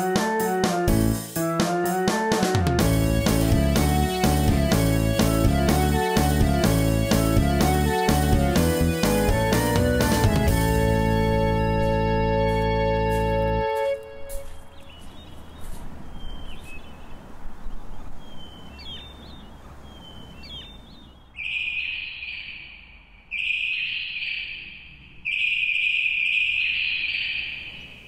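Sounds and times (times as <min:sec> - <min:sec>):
birds chirping: 0:02.8 - 0:28.0.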